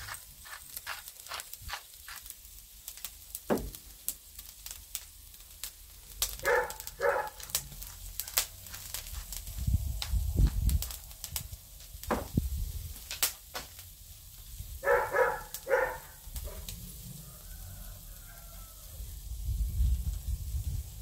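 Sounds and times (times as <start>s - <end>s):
meat sizzling on grill: 0.0s - 21.0s
low thump: 12.1s - 12.4s.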